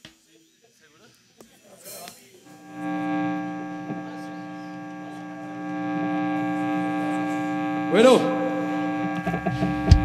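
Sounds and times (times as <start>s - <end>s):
amplifier electrical hum: 2.5s - 10.0s.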